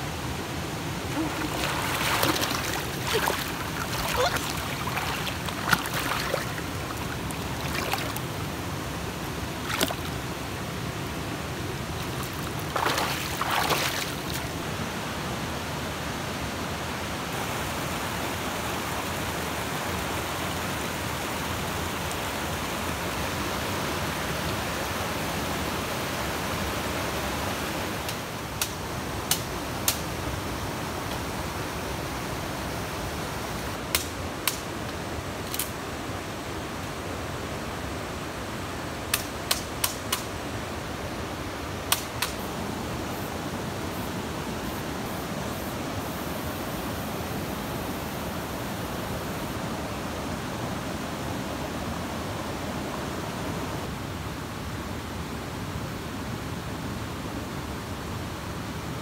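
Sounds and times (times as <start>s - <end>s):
stream water running: 0.0s - 53.9s
water splashing: 1.0s - 8.5s, 9.5s - 10.4s, 11.9s - 14.6s.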